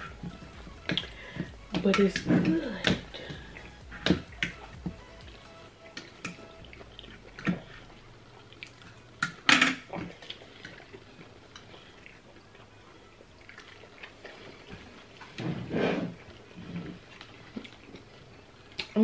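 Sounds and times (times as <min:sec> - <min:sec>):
wet chewing and mouth smacks: 0:06.0 - 0:15.4, 0:16.2 - 0:19.0.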